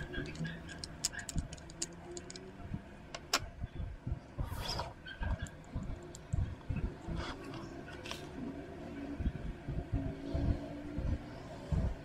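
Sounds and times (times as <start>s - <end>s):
plastic parts clicking and knocking: 0.0s - 2.5s.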